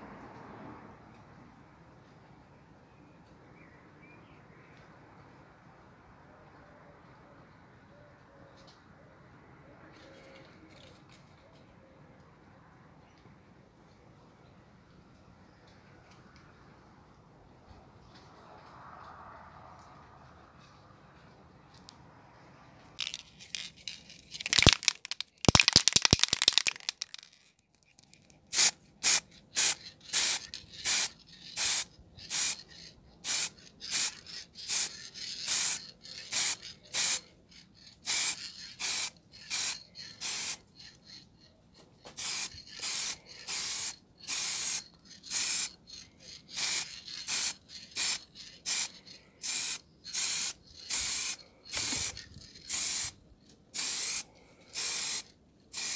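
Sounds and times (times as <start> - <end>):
aerosol can rattling: 23.0 - 37.2, 38.0 - 41.2, 42.2 - 45.8, 46.5 - 53.1
spray paint hissing bursts: 28.5 - 32.6, 33.2 - 37.2, 38.0 - 40.6, 42.2 - 45.8, 46.5 - 55.9.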